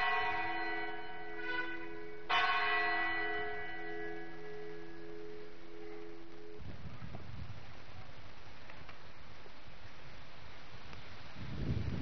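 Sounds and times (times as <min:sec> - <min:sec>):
church bell tolling: 0:00.0 - 0:06.7.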